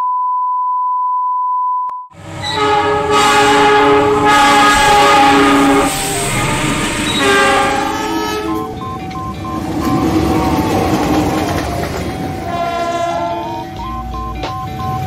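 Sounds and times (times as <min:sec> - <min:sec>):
locomotive horn chord: 0:02.2 - 0:08.8, 0:12.3 - 0:13.8
locomotive engine and wheels rumbling: 0:02.2 - 0:15.0
test tone: 0:05.9 - 0:11.1, 0:11.8 - 0:15.0.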